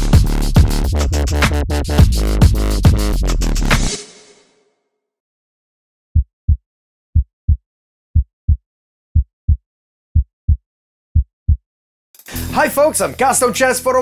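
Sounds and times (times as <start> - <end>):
heartbeat thumps: 9.2 - 9.6, 10.2 - 10.6, 11.2 - 11.6.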